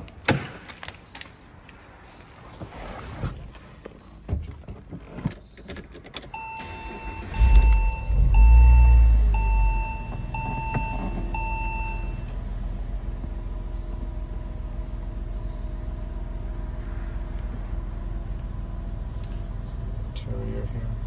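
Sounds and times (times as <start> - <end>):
car engine starting and idling: 3.2 - 21.0
electronic chime beeping: 6.4 - 12.2.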